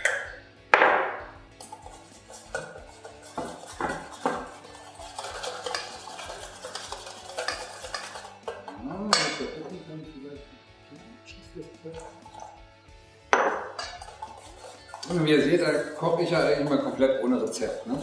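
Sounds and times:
metal utensil scraping a steel bowl: 1.6 - 9.7, 13.7 - 18.0.

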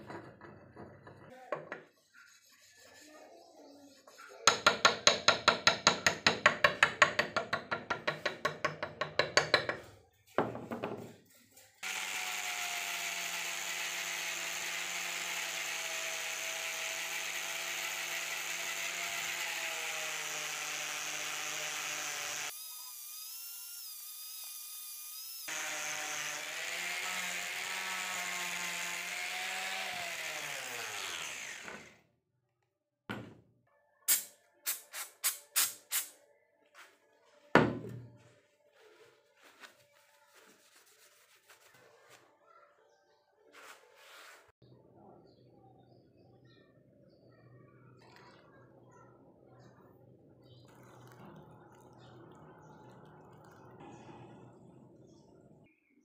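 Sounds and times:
angle grinder polishing steel: 25.2 - 31.9.

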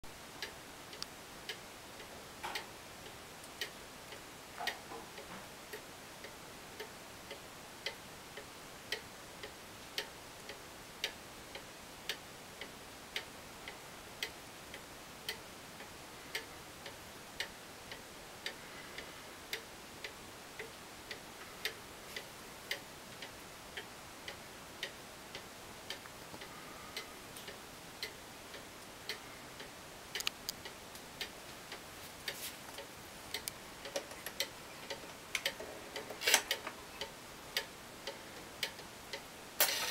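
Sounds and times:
cuckoo clock ticking: 32.8 - 39.9.

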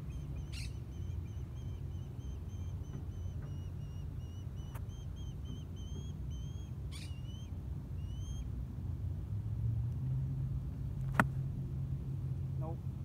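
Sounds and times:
bird chirping: 0.0 - 8.5
low steady rumble: 0.0 - 13.0
golf club striking ball: 11.1 - 11.4.

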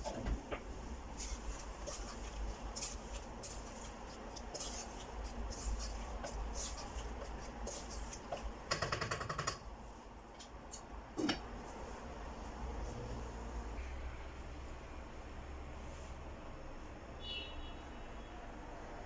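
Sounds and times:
wooden spatula scraping saucepan: 1.1 - 8.7.

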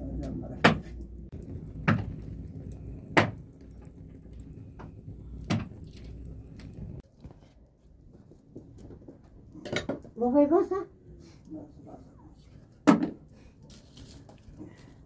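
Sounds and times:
low steady rumble: 1.0 - 7.0.

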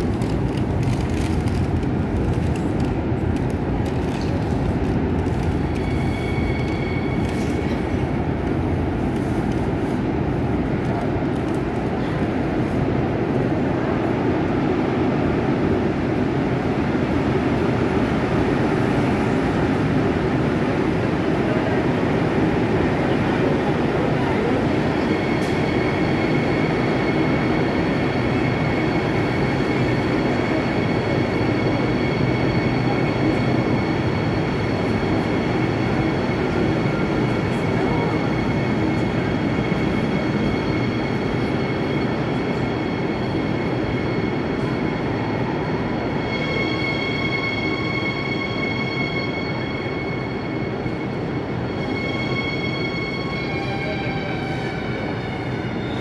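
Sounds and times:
train running rumble: 0.0 - 56.0
train wheel squeal: 5.2 - 10.2, 21.4 - 56.0.

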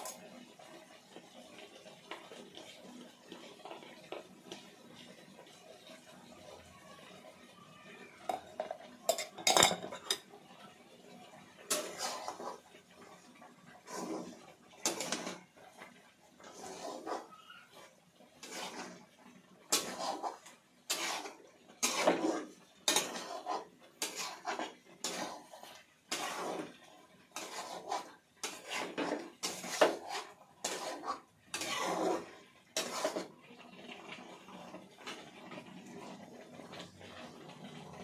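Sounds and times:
spoon scraping a cooking pot: 8.3 - 10.3, 11.6 - 38.0.

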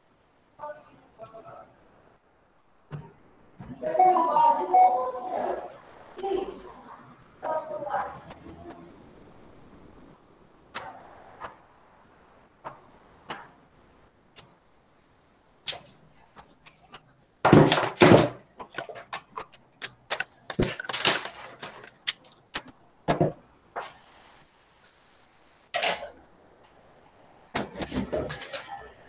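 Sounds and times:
knocks and thuds: 17.4 - 18.8, 22.6 - 23.4
sharp clicks and clatters: 17.7 - 22.8.

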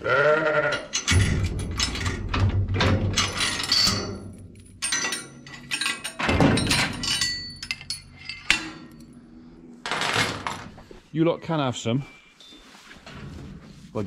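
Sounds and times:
metal gate clanking: 0.2 - 9.2
chain clinking: 0.8 - 9.2.

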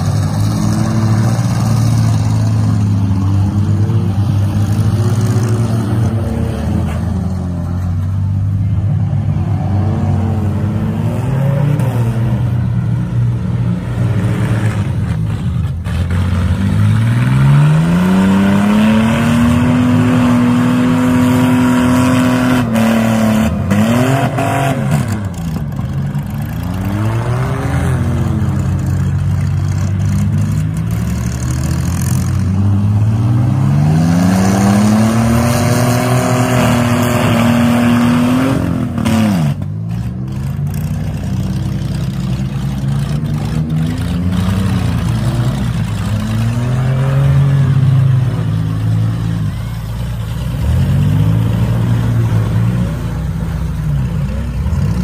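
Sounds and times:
minivan engines revving hard: 0.0 - 55.0
other engines running: 0.0 - 55.0.

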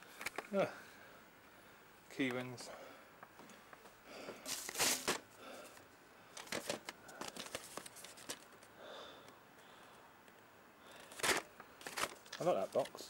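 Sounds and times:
plastic cases sliding and rustling: 4.4 - 8.7, 11.0 - 13.0.

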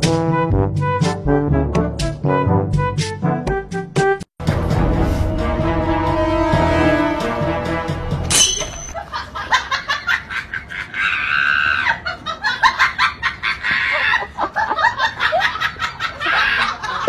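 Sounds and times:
cackling laughter: 9.0 - 17.0.

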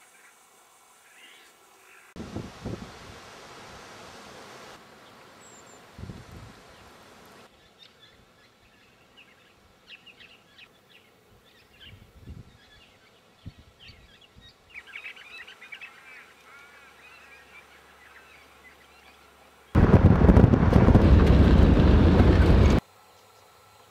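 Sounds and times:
low thumps: 19.8 - 22.8.

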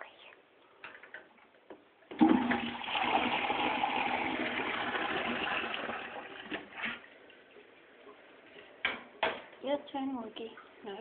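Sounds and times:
toilet flushing: 2.1 - 7.6.

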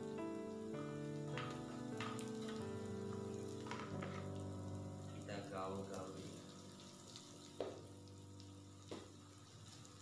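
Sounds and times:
background music with held notes: 0.0 - 10.0
faint sizzle of frying: 0.0 - 10.0.

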